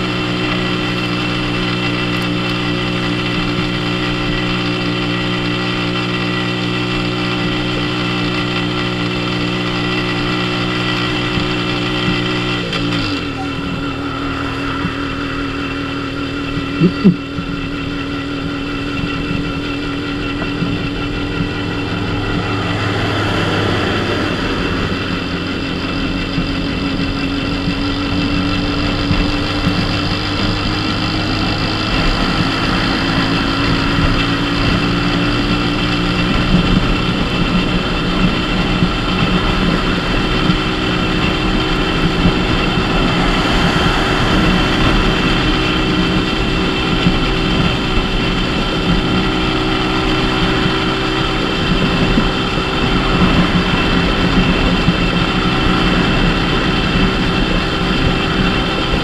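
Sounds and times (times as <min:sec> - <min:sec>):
motorcycle engine cruising: 0:00.0 - 0:59.0
wind and road noise: 0:00.0 - 0:59.0.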